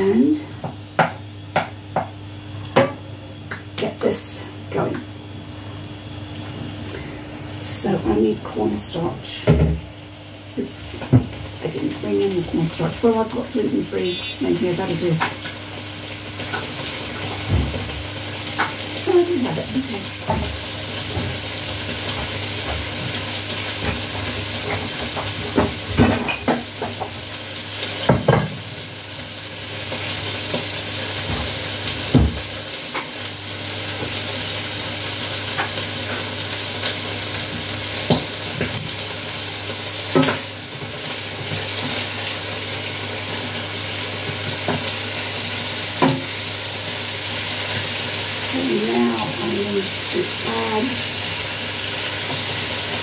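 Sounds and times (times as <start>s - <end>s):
food sizzling in hot pan: 9.7s - 53.0s.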